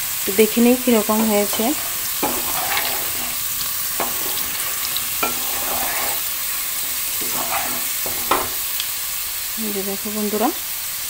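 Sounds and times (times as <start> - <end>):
potatoes sizzling in hot oil: 0.0 - 11.0
wooden spatula scraping pan: 1.3 - 8.8.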